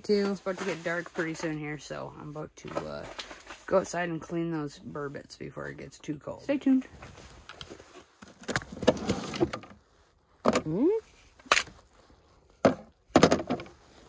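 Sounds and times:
storage drawer sliding open: 0:08.7 - 0:09.7.

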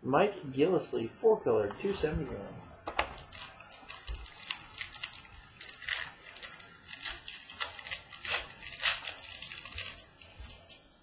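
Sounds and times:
card wrappers crinkling: 0:02.8 - 0:11.0.

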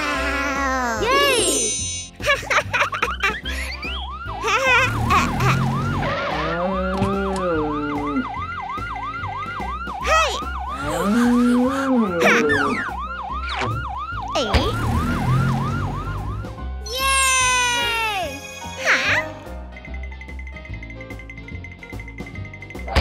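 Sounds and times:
cartoon ambulance siren: 0:03.5 - 0:19.4.

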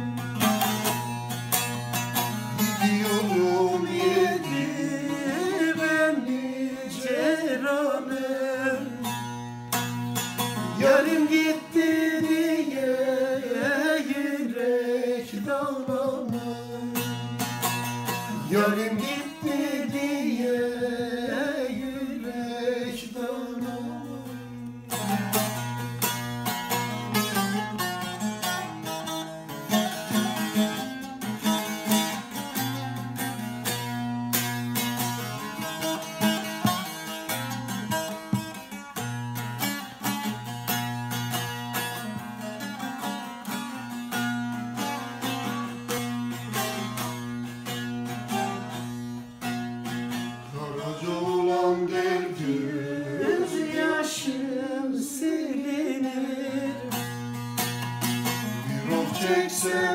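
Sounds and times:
plucked lute folk melody: 0:00.0 - 0:59.9
person singing: 0:02.6 - 0:09.4, 0:10.6 - 0:17.3, 0:18.2 - 0:25.9, 0:50.4 - 0:57.3, 0:58.5 - 0:59.9.

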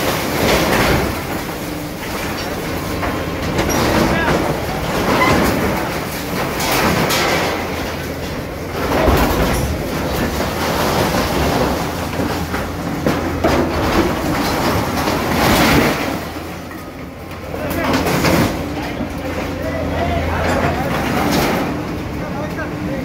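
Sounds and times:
sheet metal clanking and crashing: 0:00.0 - 0:19.6, 0:20.3 - 0:22.0
diesel engine rumbling: 0:00.0 - 0:23.0.

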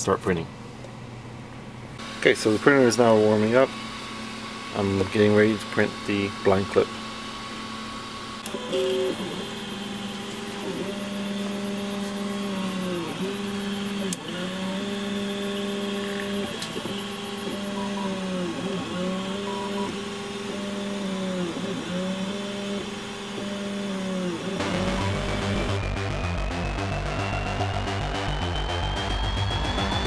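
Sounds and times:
stepper motor whine: 0:02.0 - 0:30.0
electronic music: 0:24.5 - 0:30.0.

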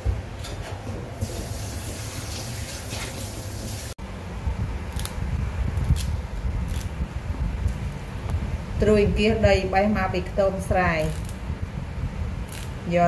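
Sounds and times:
water running: 0:01.2 - 0:04.0
low rumble: 0:04.0 - 0:13.0.

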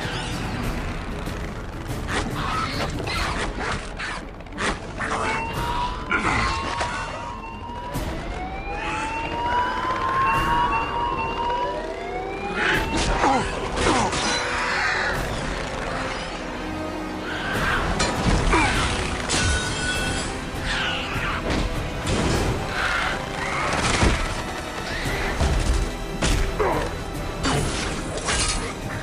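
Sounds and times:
film music: 0:00.0 - 0:29.0
siren-like wailing tones: 0:04.0 - 0:25.9.

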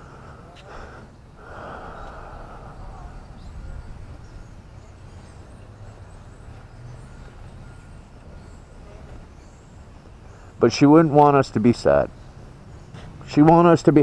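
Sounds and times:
faint bird chirps: 0:01.5 - 0:11.0
wind rumble on microphone: 0:02.0 - 0:04.7.

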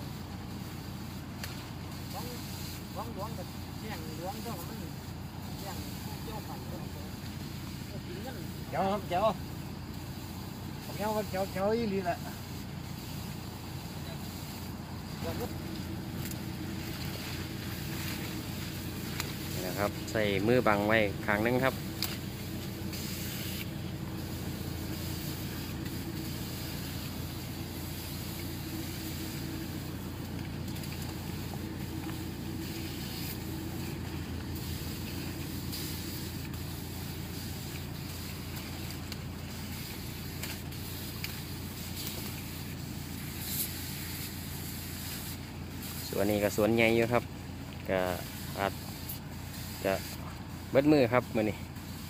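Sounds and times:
pump engine running: 0:00.0 - 0:52.0
spray lance hissing: 0:00.0 - 0:52.0.

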